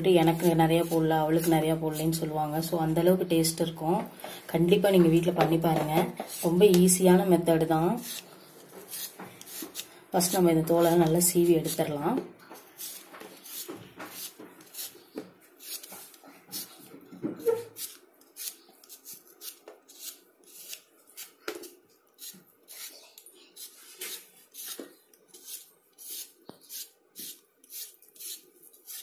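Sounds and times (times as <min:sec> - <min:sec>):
vegetable peeler scraping potato: 0:00.1 - 0:02.7, 0:06.2 - 0:11.8, 0:12.8 - 0:21.4, 0:22.1 - 0:23.0, 0:23.6 - 0:29.0.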